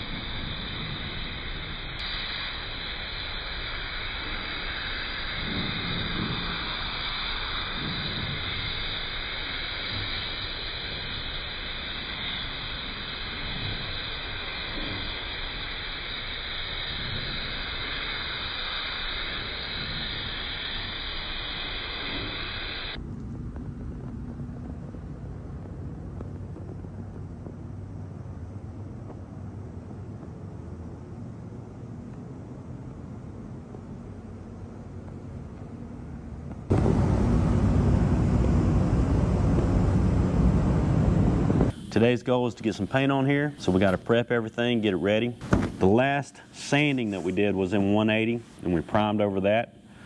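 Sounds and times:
paint spray gun hissing: 0.0 - 23.2, 36.6 - 50.0
low quiet hum: 21.8 - 50.0.

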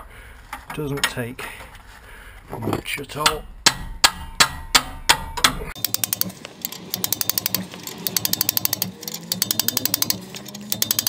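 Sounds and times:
hammer striking spanner: 3.1 - 11.0
ratchet spanner clicking: 4.7 - 11.0.

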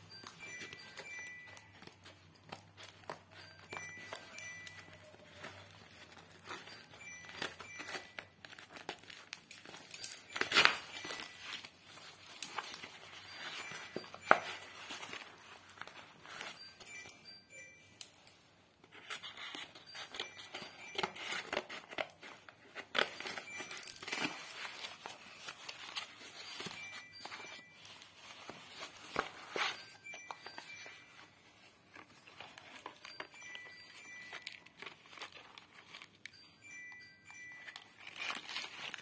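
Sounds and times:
rustle of cardboard packets: 0.1 - 17.4, 18.8 - 39.0
cardboard and paper crinkling and tearing: 18.8 - 36.3, 37.6 - 39.0.

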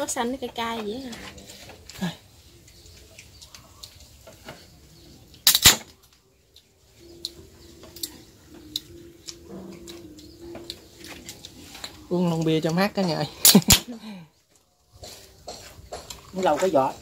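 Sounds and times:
beer can pop and hiss: 5.4 - 5.9
cutlery and dishes clinking: 15.0 - 17.0.

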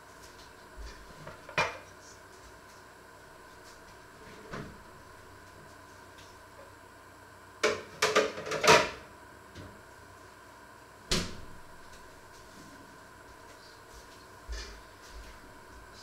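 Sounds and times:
kitchen knocks and clanks: 1.3 - 1.8, 7.6 - 9.0.

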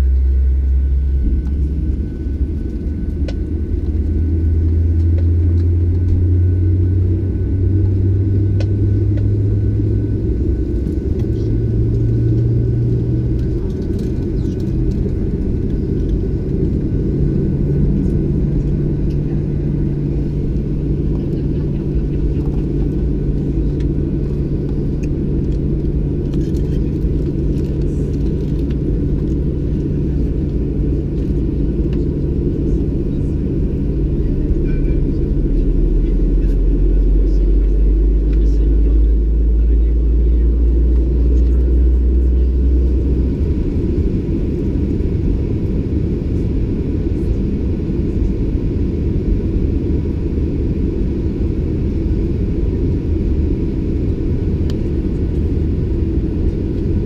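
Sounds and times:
engine spooling up hum: 0.0 - 57.0
jet engine rumble: 0.0 - 57.0.

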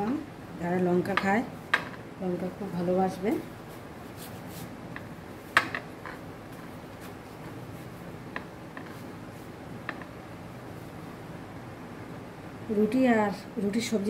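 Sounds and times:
flatbreads tapping on a plate: 4.9 - 6.2, 8.3 - 9.0, 9.8 - 10.2.

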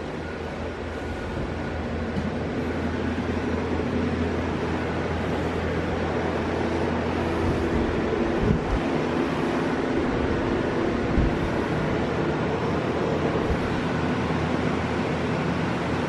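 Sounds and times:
air conditioner humming: 0.0 - 16.0.

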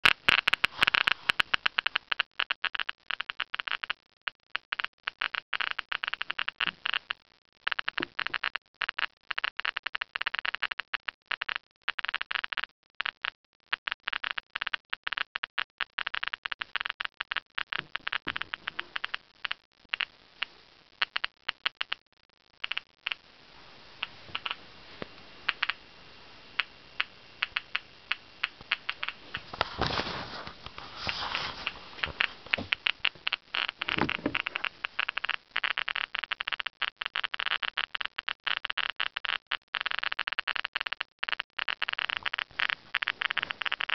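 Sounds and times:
radiation meter clicking: 24.0 - 24.6, 25.5 - 25.8, 26.6 - 29.6.

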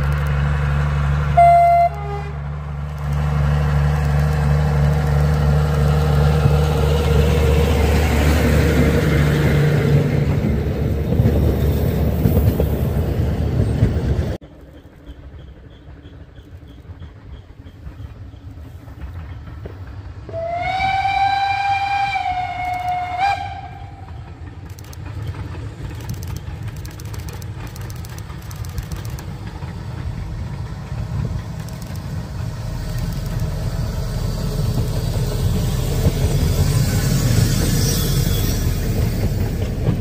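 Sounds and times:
train rumbling past: 0.0 - 40.0
steam locomotive whistle: 1.3 - 2.5, 20.3 - 24.2.

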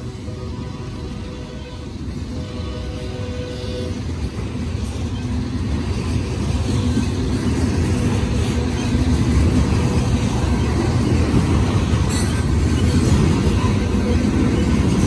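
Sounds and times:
freight train wheels rumbling: 0.0 - 15.0.

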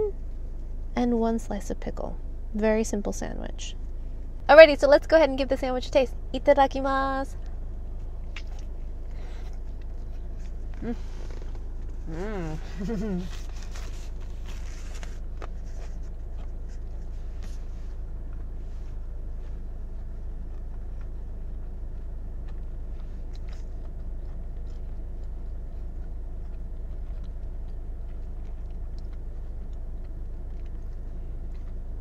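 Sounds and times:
car interior hum: 0.0 - 32.0
chewing sandwich: 7.9 - 32.0.

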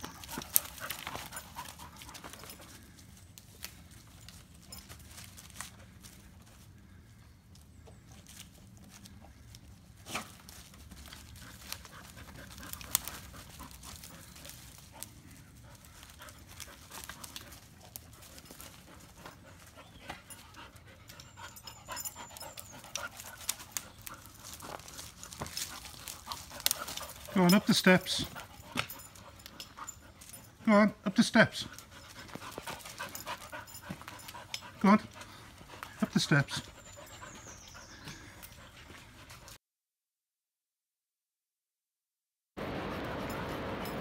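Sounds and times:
dog panting: 0.0 - 2.9, 10.9 - 39.6
rustling through leaves: 0.0 - 7.3, 8.0 - 20.8, 21.9 - 30.4.

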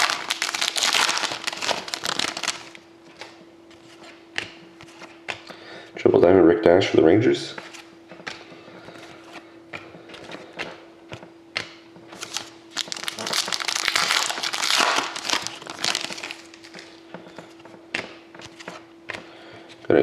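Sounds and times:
foil wrapper crinkling: 0.0 - 2.8, 12.2 - 16.9.

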